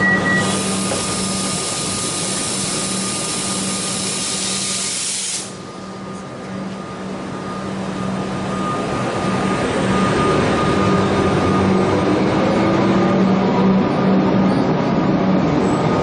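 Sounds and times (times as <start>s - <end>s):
train hum: 0.0s - 16.0s
compressed air hissing: 0.4s - 5.6s.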